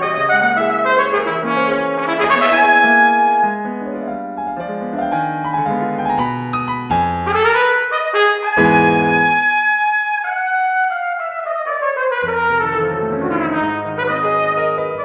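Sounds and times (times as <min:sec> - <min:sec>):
trumpet playing slow melody: 0:00.0 - 0:03.7, 0:07.3 - 0:15.0
piano accompaniment: 0:00.0 - 0:15.0.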